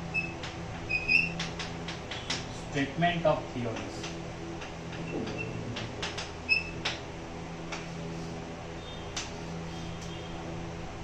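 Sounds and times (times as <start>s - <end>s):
chalk squeaks: 0.1s - 1.4s, 6.5s - 6.9s.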